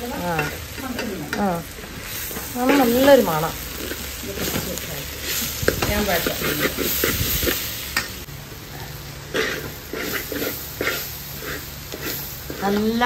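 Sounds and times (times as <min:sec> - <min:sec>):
frying in oil sizzling: 0:00.0 - 0:13.0
spoon scraping a metal pot: 0:09.3 - 0:12.9.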